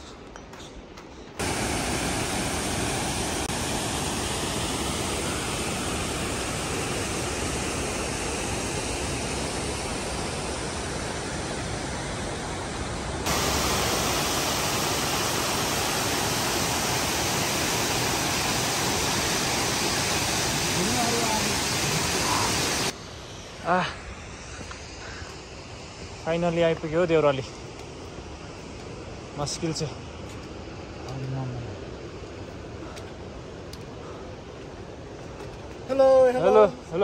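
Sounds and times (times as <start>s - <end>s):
fast river rushing: 1.4s - 23.0s.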